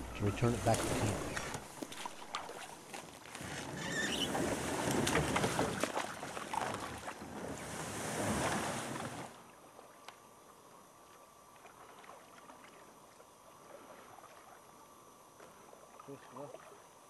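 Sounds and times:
canoe hull scraping ground: 0.0 - 9.4.

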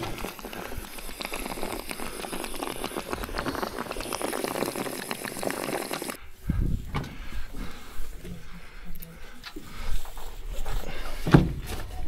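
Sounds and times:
water pouring with splashing gurgle: 0.0 - 6.2.

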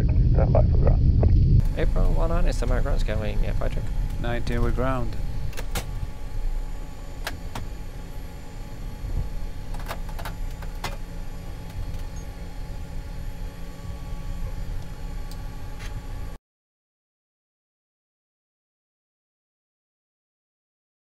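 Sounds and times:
airliner engines rumbling: 0.0 - 16.4.

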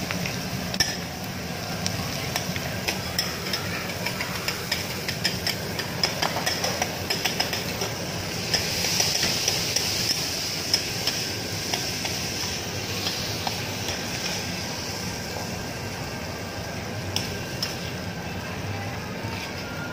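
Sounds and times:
steady hiss: 0.0 - 18.8
metal utensils clinking on plates: 2.3 - 11.8.

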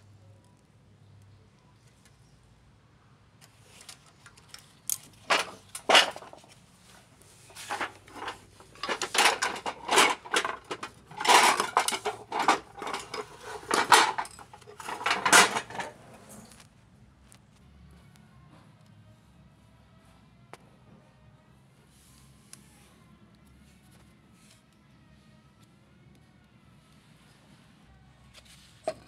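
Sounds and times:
metal tools clinking and knocking: 3.8 - 6.6, 7.5 - 16.5.

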